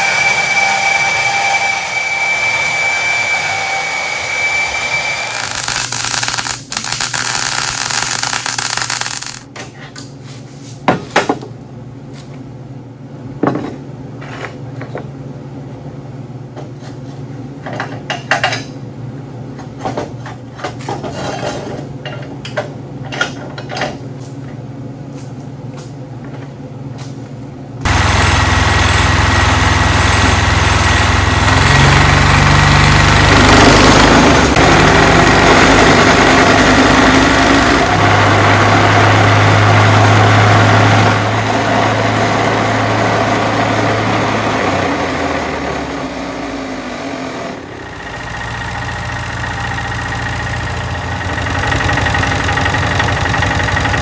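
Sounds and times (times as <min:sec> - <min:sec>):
plate compactor engine running: 0:00.0 - 0:09.5, 0:27.8 - 0:54.0
welding crackling: 0:05.2 - 0:09.5, 0:27.9 - 0:33.9.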